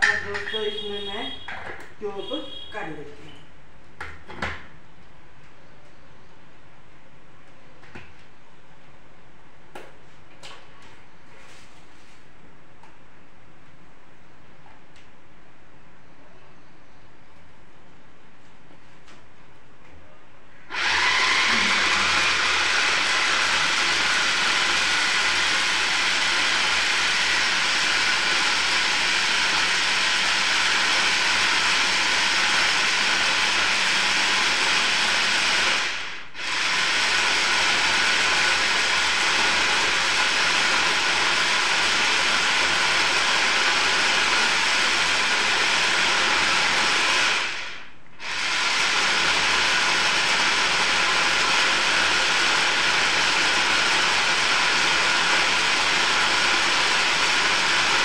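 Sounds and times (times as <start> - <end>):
electric chopper blending: 20.7 - 58.0.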